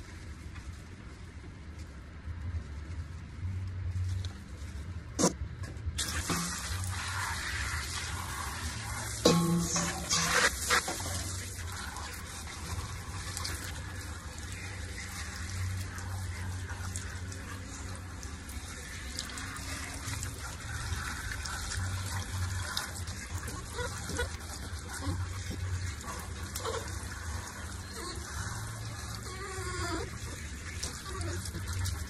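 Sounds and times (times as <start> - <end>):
shower head spraying water: 6.0 - 29.2.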